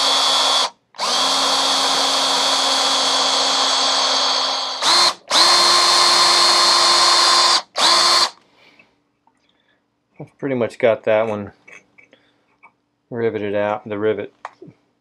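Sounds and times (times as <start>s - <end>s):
power drill whining: 0.0s - 8.4s.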